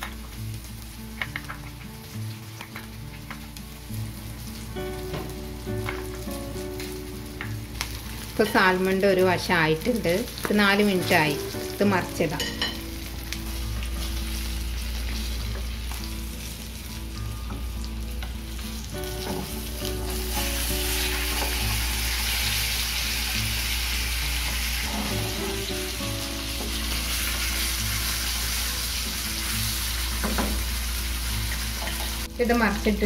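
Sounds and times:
fish sizzling in a frying pan: 0.0s - 33.0s.

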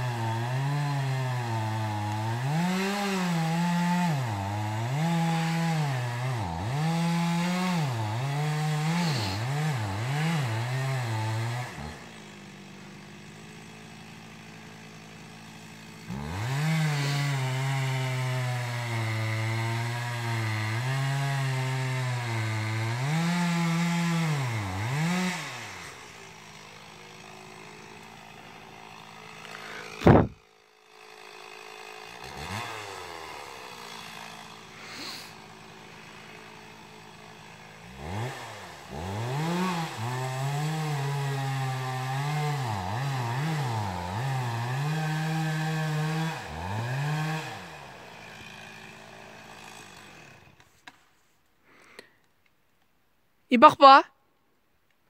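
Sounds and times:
chainsaw cutting and idling: 0.0s - 52.3s
chainsaw throttle blips: 8.3s - 10.4s, 22.9s - 30.4s.

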